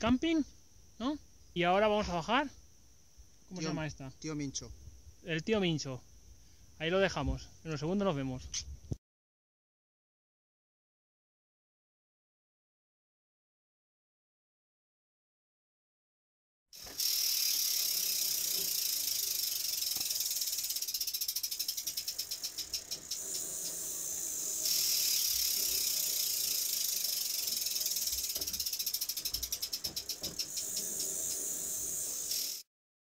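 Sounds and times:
bicycle freehub ticking: 16.8s - 32.7s.

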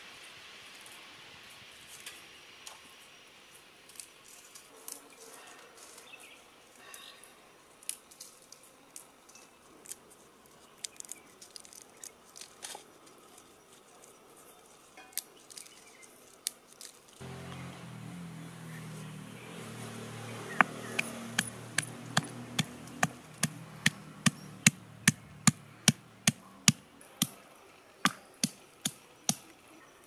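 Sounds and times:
soft steady hiss: 0.0s - 20.8s
dried chillies snapping: 7.8s - 14.1s, 15.1s - 17.2s.

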